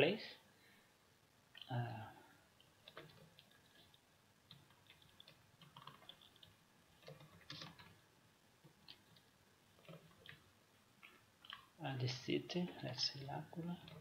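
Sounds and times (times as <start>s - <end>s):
computer keyboard typing: 2.6s - 8.0s, 8.6s - 11.8s, 13.7s - 14.0s.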